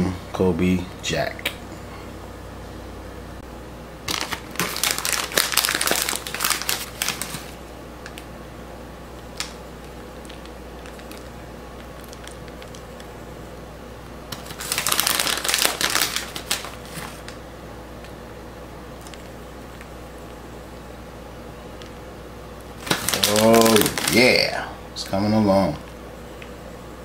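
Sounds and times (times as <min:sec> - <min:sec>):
plastic bag crinkling: 0:04.1 - 0:08.2, 0:09.3 - 0:13.0, 0:14.3 - 0:17.4, 0:22.7 - 0:24.6.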